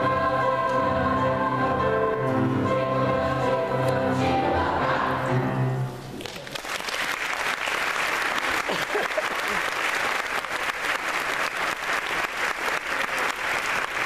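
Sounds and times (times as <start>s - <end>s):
children's choir singing: 0.0s - 6.0s
audience applause: 6.3s - 14.0s.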